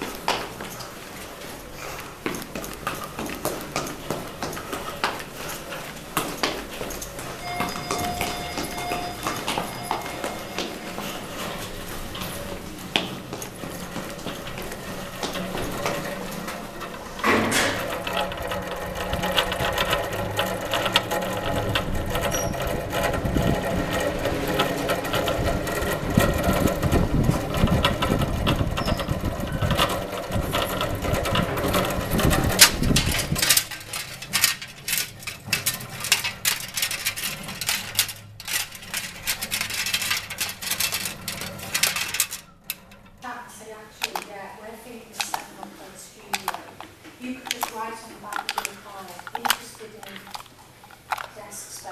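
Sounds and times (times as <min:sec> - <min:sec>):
rapid irregular clicking: 0:02.0 - 0:51.9
small machine rattling: 0:02.6 - 0:51.9.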